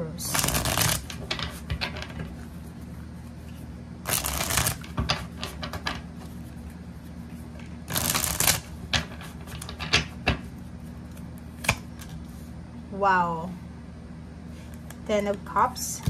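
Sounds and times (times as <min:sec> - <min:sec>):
cards being shuffled: 0:00.3 - 0:12.4.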